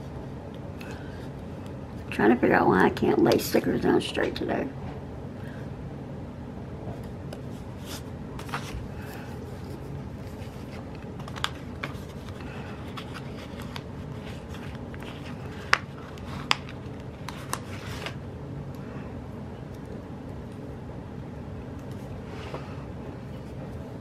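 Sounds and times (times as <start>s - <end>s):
steady low hum: 0.0s - 24.0s
paper rustles and scratches: 7.5s - 18.2s.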